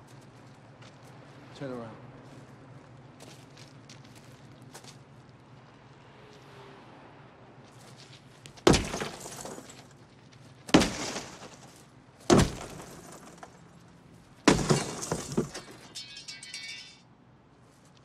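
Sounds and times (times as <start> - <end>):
car glass smashing: 8.6 - 9.9, 10.7 - 13.7, 14.4 - 17.0.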